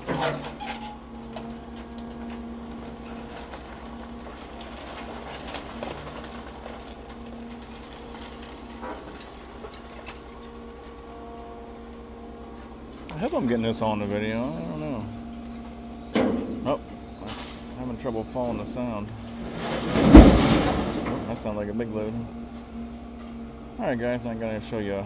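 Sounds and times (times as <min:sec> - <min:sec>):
crash of debris: 0:00.0 - 0:10.4, 0:19.2 - 0:21.8
excavator diesel engine running: 0:00.0 - 0:25.0
knocks and clatters: 0:19.3 - 0:21.5.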